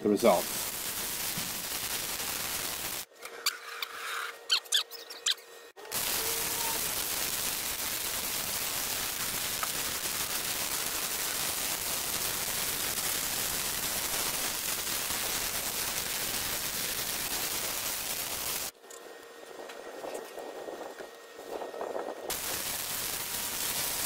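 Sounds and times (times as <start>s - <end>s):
welder arc hissing: 0.2s - 3.1s, 5.8s - 18.7s, 22.3s - 24.0s.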